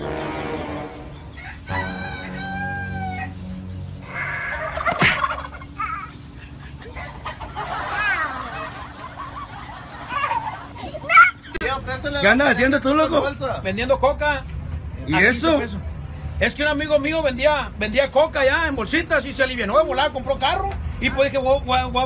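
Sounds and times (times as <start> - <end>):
bird calls: 1.0 - 11.6
chickens clucking: 1.1 - 11.6
rooster crowing: 1.2 - 5.9.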